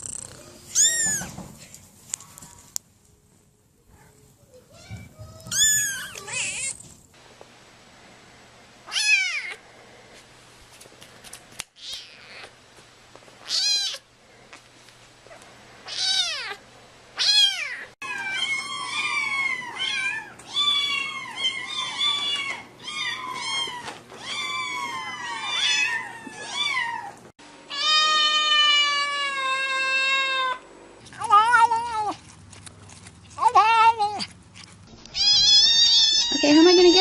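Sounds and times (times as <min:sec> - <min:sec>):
kittens meowing: 0:00.1 - 0:01.4, 0:04.8 - 0:06.8, 0:17.2 - 0:30.6, 0:35.1 - 0:37.0.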